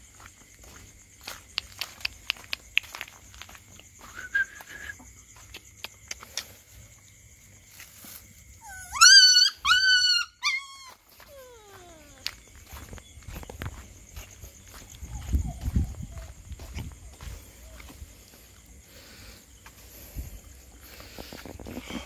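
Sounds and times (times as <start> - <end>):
paws clicking and scuffing: 0.2 - 4.0, 10.8 - 22.0
puppy whining and yelping: 8.6 - 12.2.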